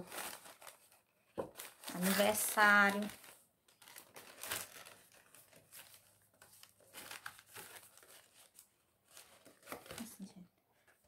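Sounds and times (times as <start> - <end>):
paper box crinkling and rustling: 0.0 - 11.0.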